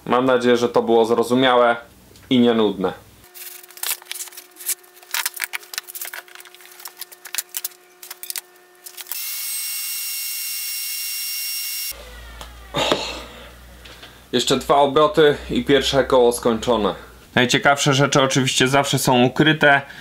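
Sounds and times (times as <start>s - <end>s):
power tool whining: 4.4s - 12.0s.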